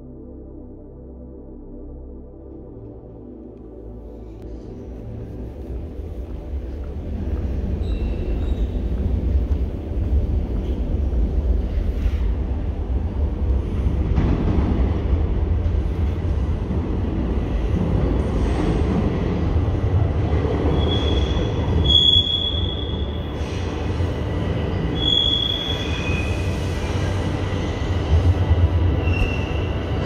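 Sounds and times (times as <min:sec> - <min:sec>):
subway train rumbling: 0:02.6 - 0:30.0
high-pitched squeals: 0:24.8 - 0:26.6.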